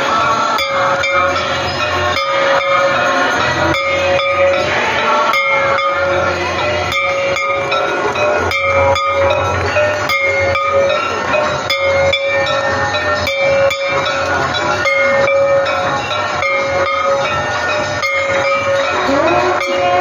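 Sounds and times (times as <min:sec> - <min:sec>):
bells and cymbals clanging: 0:00.0 - 0:20.0
constant din: 0:00.0 - 0:20.0.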